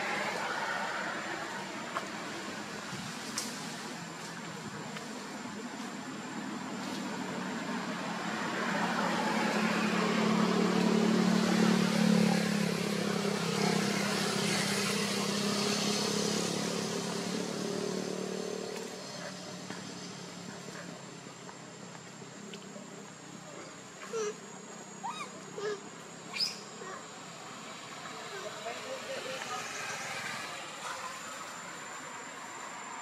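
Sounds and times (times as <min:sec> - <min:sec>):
vehicle engine passing by: 0:06.7 - 0:21.4, 0:26.5 - 0:33.0.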